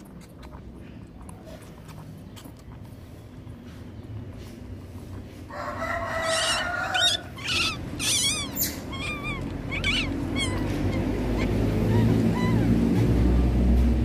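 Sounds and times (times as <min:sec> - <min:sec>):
baby otter squeaking: 0:06.0 - 0:13.0.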